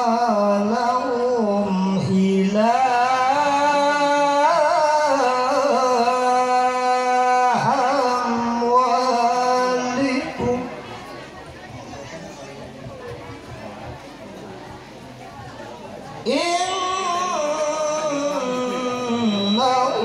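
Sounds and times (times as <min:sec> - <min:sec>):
man reciting melodically into microphone: 0:00.0 - 0:10.9, 0:16.2 - 0:20.0.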